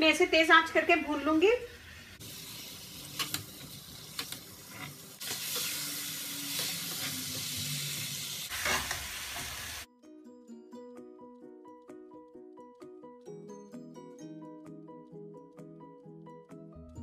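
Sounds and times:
chicken sizzling in hot oil: 1.6s - 9.9s
spatula scraping a pan: 8.5s - 9.6s
background music: 9.9s - 17.0s.

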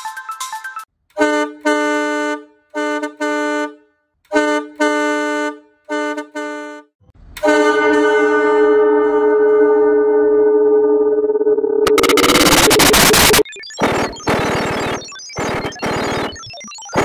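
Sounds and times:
truck horn honking: 1.1s - 10.1s
reverberant horn tone: 7.4s - 11.3s.

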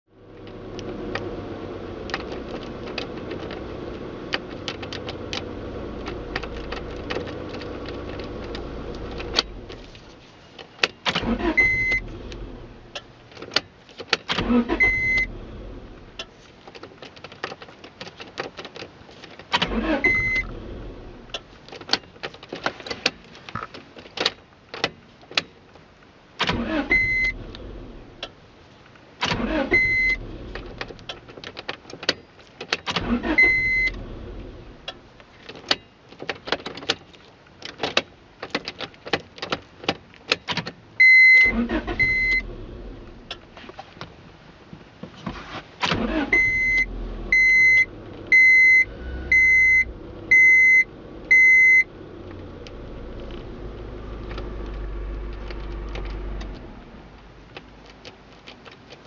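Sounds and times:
engine cranking rumble: 0.2s - 10.2s, 11.0s - 13.5s, 14.2s - 16.3s, 19.4s - 22.4s, 29.2s - 31.7s, 32.8s - 35.1s, 41.3s - 43.6s, 45.8s - 59.0s
dashboard beeping: 11.4s - 12.1s, 14.7s - 15.3s, 19.8s - 20.6s, 26.7s - 27.4s, 29.7s - 30.2s, 33.2s - 34.0s, 41.0s - 42.5s, 46.0s - 51.9s.

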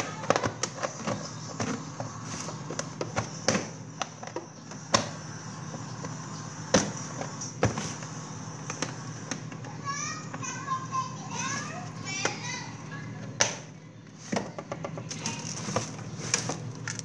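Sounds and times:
plastic containers clicking and knocking: 0.0s - 2.1s
steady refrigerator hum: 0.0s - 17.0s.

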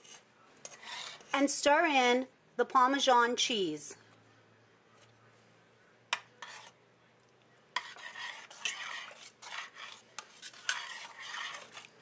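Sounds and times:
spoon scraping pot: 0.0s - 1.6s, 6.1s - 6.8s, 7.7s - 12.0s.

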